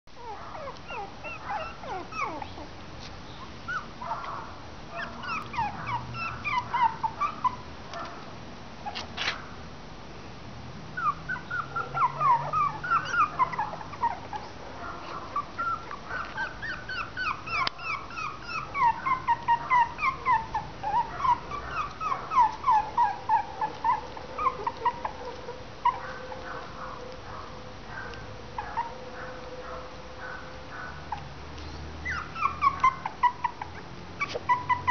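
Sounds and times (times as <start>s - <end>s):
puppies whimpering and squeaking: 0.2s - 2.8s, 3.4s - 4.3s, 4.9s - 8.1s, 11.0s - 34.9s.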